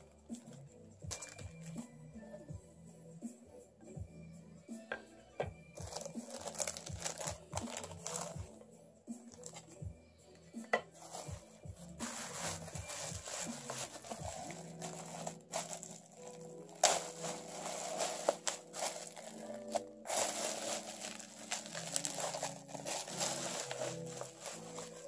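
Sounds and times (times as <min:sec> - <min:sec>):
background music: 0:00.0 - 0:25.0
packaging crinkling: 0:05.8 - 0:08.4, 0:12.0 - 0:25.0.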